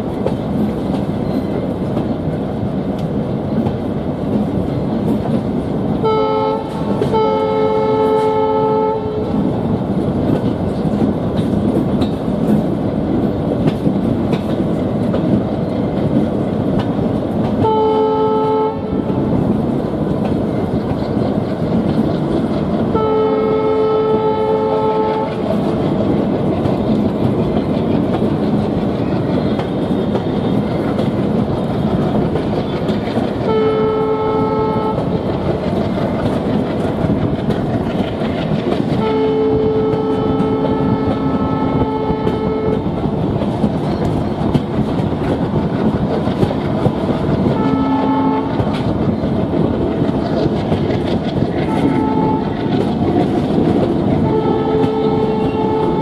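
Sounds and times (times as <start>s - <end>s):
train wheels rumbling on track: 0.0s - 56.0s
locomotive horn blasts: 6.0s - 9.5s, 17.6s - 19.3s, 22.9s - 25.6s, 33.4s - 35.1s, 38.9s - 42.9s, 47.5s - 48.8s, 51.6s - 52.7s, 54.2s - 56.0s.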